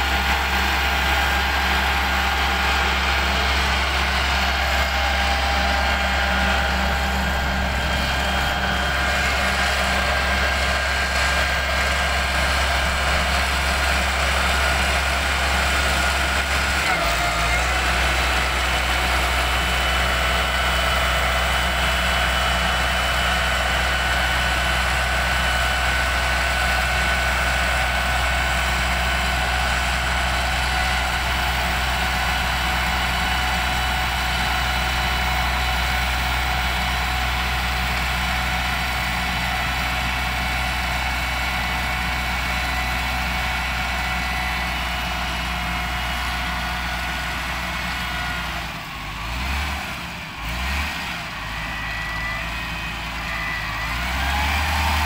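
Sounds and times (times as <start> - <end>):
diesel engine running: 0.0 - 55.0.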